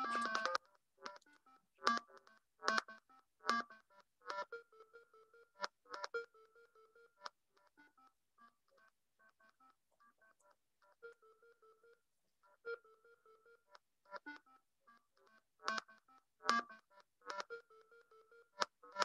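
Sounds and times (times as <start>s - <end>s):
electronic beep melody: 0.0s - 0.6s.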